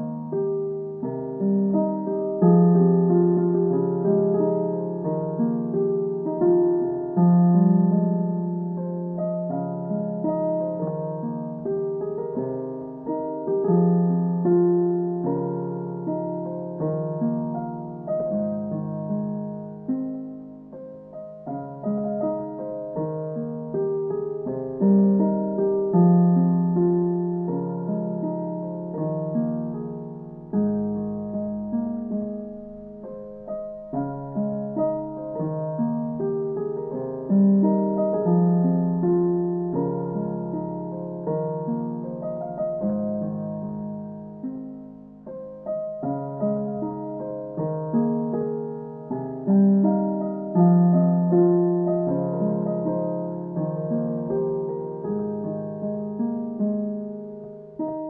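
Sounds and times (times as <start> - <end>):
slow gentle piano music: 0.0 - 58.0.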